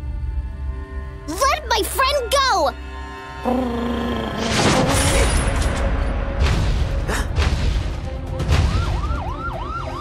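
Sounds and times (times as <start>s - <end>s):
action film music: 0.0s - 10.0s
siren wailing: 8.7s - 10.0s.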